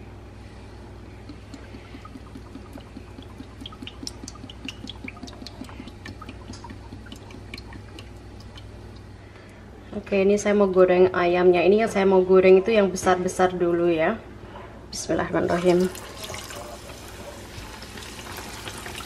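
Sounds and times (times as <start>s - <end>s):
steady low hum: 0.0s - 11.8s
oil glugging into frying pan: 1.3s - 9.1s, 15.5s - 19.0s.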